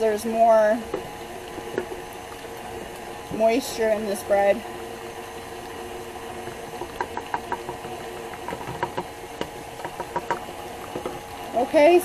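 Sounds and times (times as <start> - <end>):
stand mixer running: 0.0 - 12.0
light clicks and knocks: 6.5 - 11.3.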